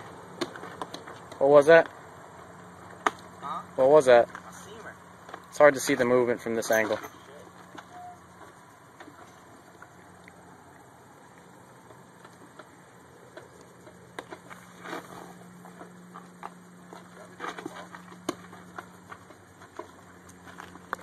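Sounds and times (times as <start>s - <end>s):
faint low hum: 0.0s - 21.0s.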